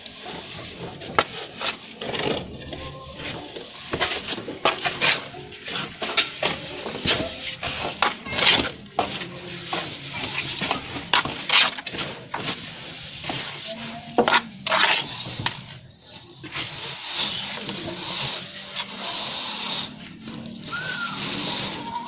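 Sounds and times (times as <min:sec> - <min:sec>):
trowel scraping mortar on concrete: 0:00.0 - 0:22.0.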